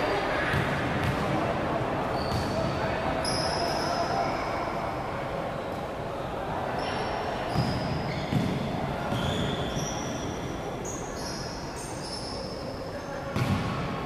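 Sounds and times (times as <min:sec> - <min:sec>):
shoes squeaking on gym floor: 0:02.1 - 0:04.2, 0:06.8 - 0:12.6
ball bouncing: 0:07.5 - 0:09.3, 0:13.3 - 0:13.8.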